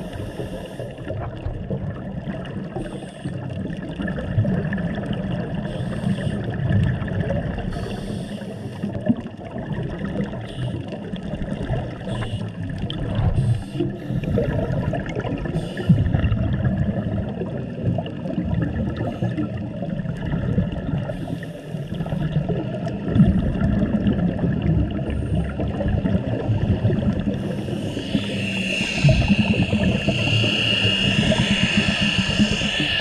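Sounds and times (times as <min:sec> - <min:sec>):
regulator breathing hiss: 0:00.0 - 0:01.1, 0:02.8 - 0:03.4, 0:05.6 - 0:06.6, 0:07.7 - 0:09.0, 0:10.4 - 0:11.0, 0:12.0 - 0:12.7, 0:13.3 - 0:14.6, 0:15.5 - 0:16.1, 0:21.0 - 0:22.3, 0:27.1 - 0:33.0
muffled underwater rumble: 0:00.0 - 0:33.0.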